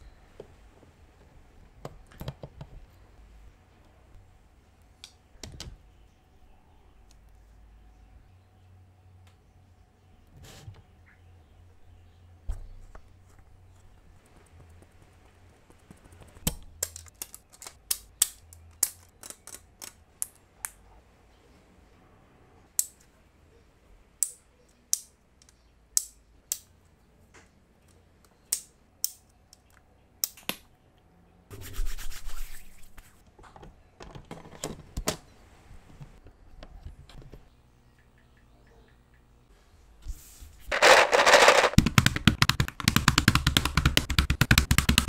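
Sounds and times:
keyboard parts clicking and snapping: 0:15.9 - 0:20.8.

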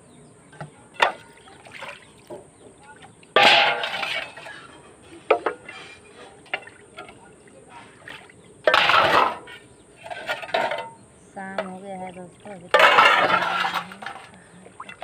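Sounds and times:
scrubbing and water: 0:00.9 - 0:15.0
steel dishes clinking and scraping: 0:03.4 - 0:07.2, 0:08.6 - 0:11.8, 0:12.7 - 0:15.0.

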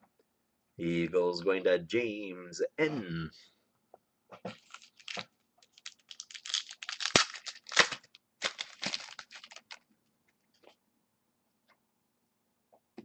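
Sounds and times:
plastic sleeves crinkling: 0:04.5 - 0:10.8.

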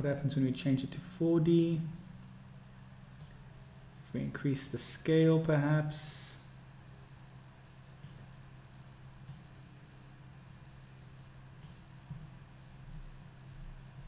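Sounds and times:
low electrical hum: 0:00.0 - 0:14.0
computer mouse clicks: 0:02.8 - 0:03.4, 0:08.0 - 0:08.3, 0:09.2 - 0:09.5, 0:11.6 - 0:11.9.

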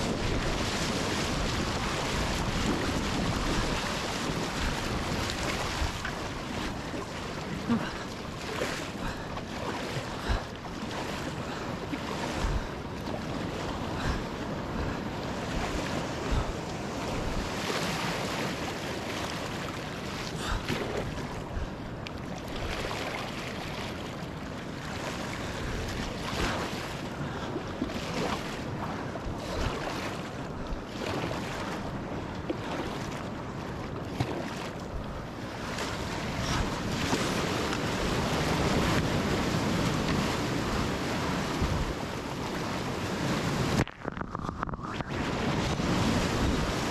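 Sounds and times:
paddle splashing in water: 0:00.0 - 0:14.2, 0:14.8 - 0:21.7, 0:25.0 - 0:46.9
breaking surf: 0:00.0 - 0:14.4, 0:35.6 - 0:46.9
wind on microphone: 0:00.0 - 0:23.2, 0:24.9 - 0:46.9.

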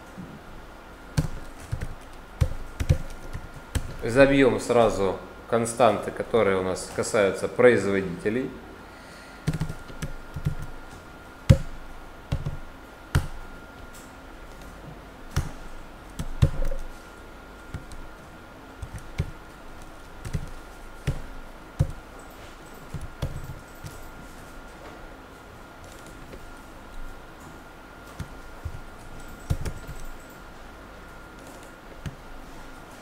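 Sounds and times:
computer keyboard keystrokes: 0:01.2 - 0:04.0, 0:09.4 - 0:16.9, 0:17.7 - 0:18.2, 0:18.8 - 0:24.1, 0:25.8 - 0:26.4, 0:28.1 - 0:30.4, 0:31.4 - 0:32.2.

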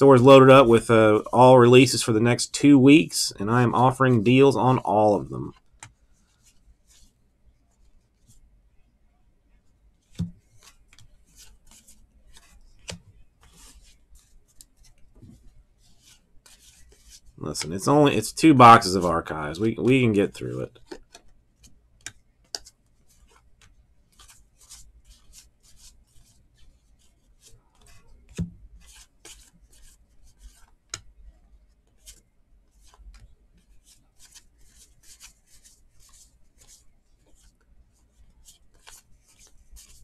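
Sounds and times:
trading cards swishing: 0:10.1 - 0:21.2, 0:33.8 - 0:37.6, 0:38.2 - 0:40.0.

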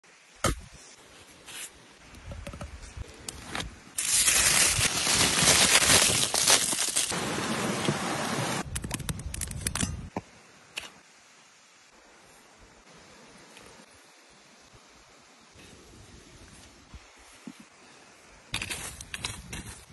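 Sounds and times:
aluminium foil crinkling: 0:04.0 - 0:07.2.

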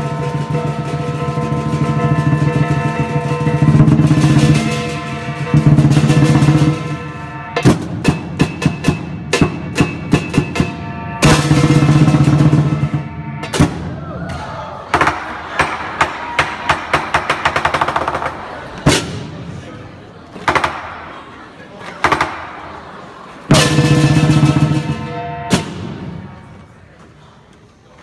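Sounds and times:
gong and cymbals: 0:00.0 - 0:14.0.

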